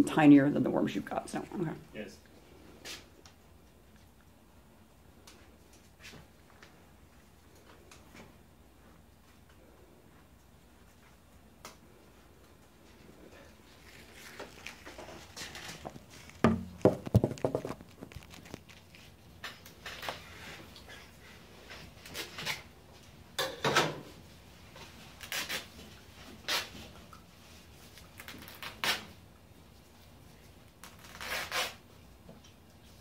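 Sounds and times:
laundry bag rustling and crinkling: 13.5s - 19.2s
louder knocks: 16.4s - 17.8s.

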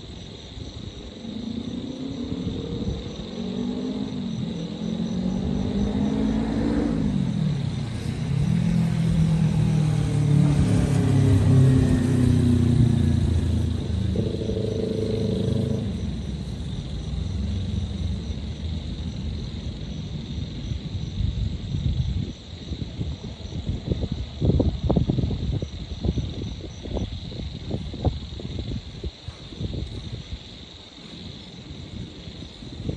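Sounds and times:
higher engine drone: 1.5s - 19.9s
vehicle engines passing: 2.3s - 21.0s.

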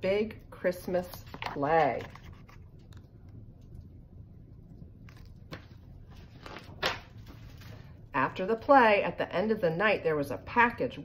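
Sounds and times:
low room hum: 0.0s - 11.0s
book page rustling: 0.9s - 3.1s, 5.0s - 7.8s.

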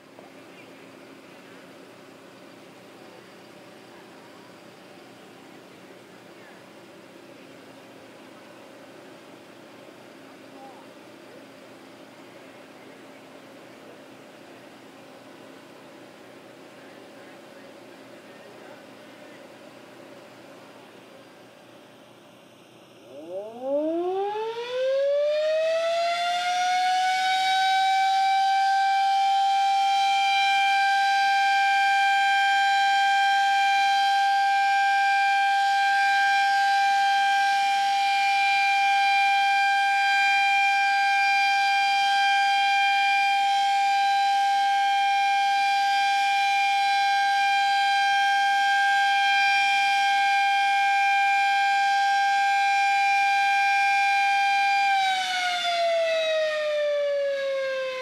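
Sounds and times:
siren two-tone chord: 23.0s - 58.0s.

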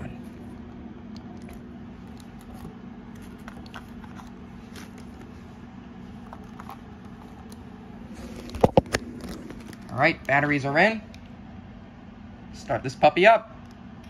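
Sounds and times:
steady low hum: 0.0s - 14.0s
plastic bag rustling: 2.3s - 10.1s.

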